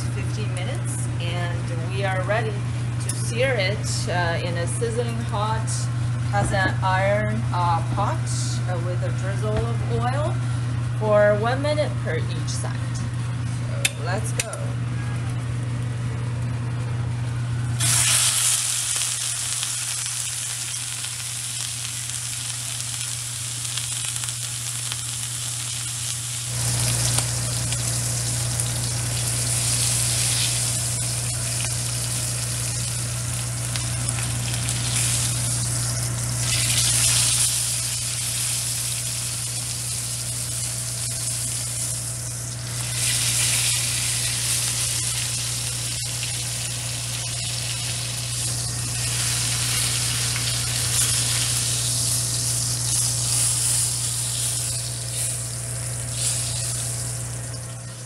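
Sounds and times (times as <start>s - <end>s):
steady low hum: 0.0s - 58.0s
meat sizzling in hot oil: 17.8s - 58.0s.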